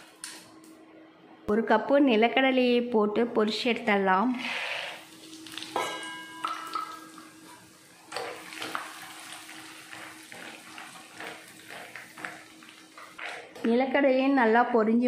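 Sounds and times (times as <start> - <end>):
peanuts sizzling in hot oil: 4.4 - 5.8, 6.7 - 13.5
short ringing clink: 5.8 - 6.8.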